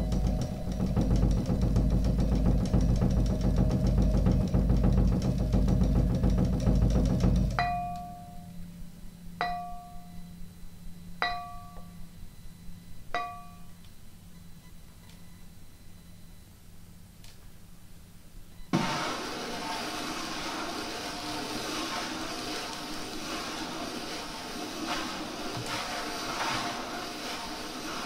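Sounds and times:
faint low drone: 0:00.0 - 0:13.8
bell-like struck notes: 0:07.6 - 0:08.6, 0:09.4 - 0:10.3, 0:11.2 - 0:12.0, 0:13.2 - 0:13.8.

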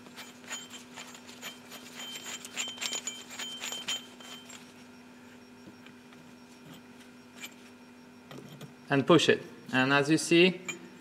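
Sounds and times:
metal parts clinking and rattling: 0:00.0 - 0:04.8.

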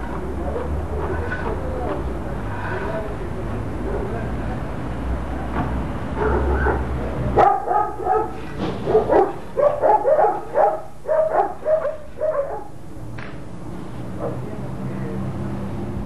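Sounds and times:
dog barking: 0:06.2 - 0:12.7.

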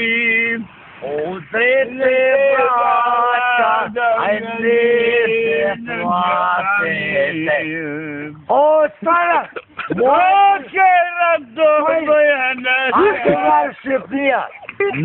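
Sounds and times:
drunk men singing: 0:00.0 - 0:09.1.

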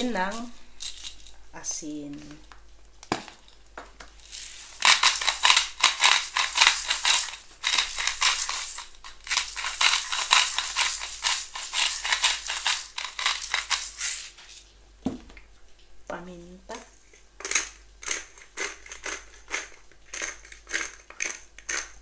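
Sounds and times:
salt grinder grinding: 0:00.0 - 0:01.4, 0:04.2 - 0:14.6, 0:17.4 - 0:22.0.

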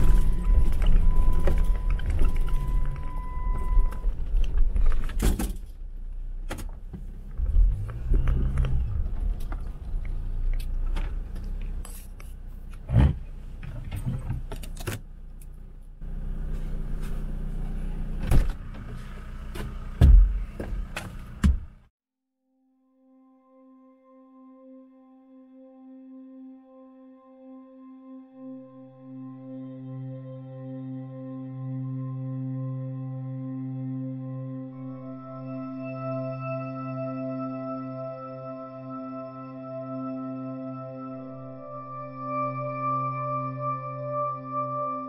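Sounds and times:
steady beep: 0:00.0 - 0:04.2
car engine running at low revs: 0:00.0 - 0:21.9.

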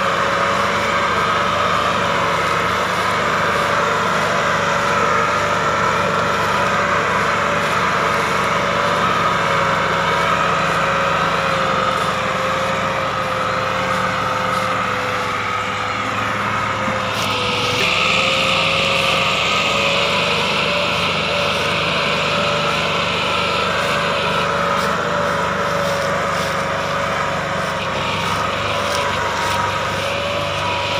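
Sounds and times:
diesel tractor engine under load: 0:00.0 - 0:30.9.

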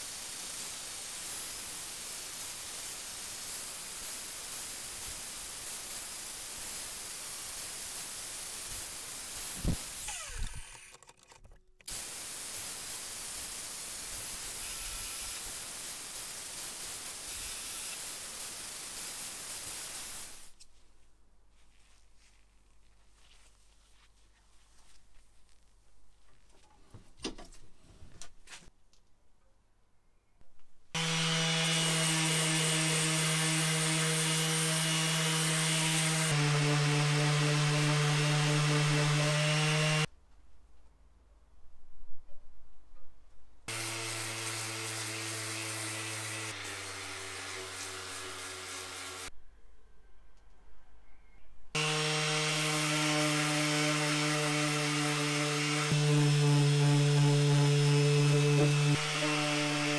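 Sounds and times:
steady hiss: 0:00.0 - 0:10.1, 0:11.9 - 0:20.6
orbital sander on metal: 0:11.9 - 0:20.4, 0:31.0 - 0:40.1, 0:43.7 - 0:49.3, 0:51.8 - 0:59.9.

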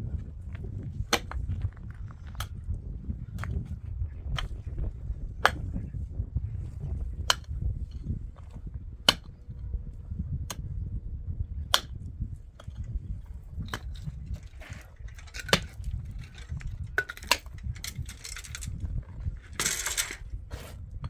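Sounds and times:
pickaxe striking stony soil: 0:01.0 - 0:01.6, 0:05.4 - 0:05.8, 0:07.2 - 0:09.3, 0:11.7 - 0:12.0, 0:13.6 - 0:18.8.

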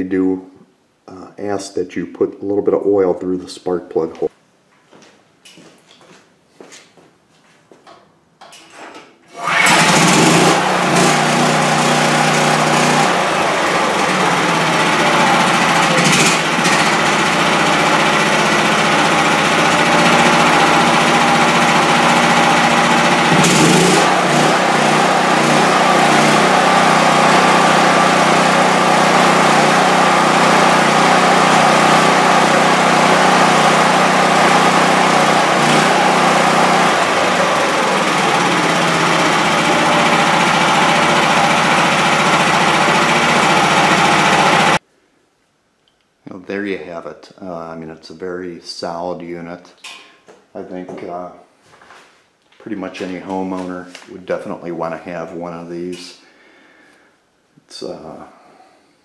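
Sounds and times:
generator engine running: 0:09.3 - 0:44.8.

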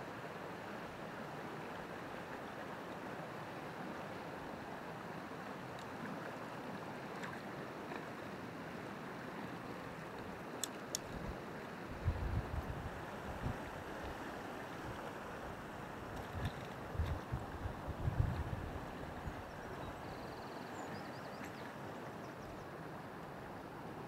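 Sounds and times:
stream flowing over stones: 0:00.1 - 0:20.0
faint clicks: 0:10.6 - 0:11.2.

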